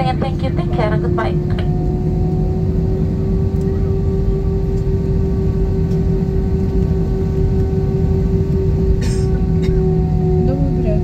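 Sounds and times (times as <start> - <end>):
aircraft cabin rumble: 0.0 - 11.0
jet engines idling hum: 0.0 - 11.0.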